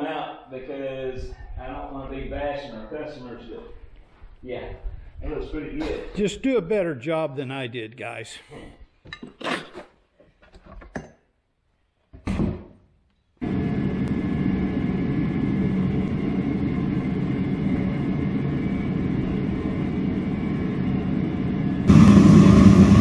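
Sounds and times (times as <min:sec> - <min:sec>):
low mechanical roar of machinery: 0:13.4 - 0:23.0.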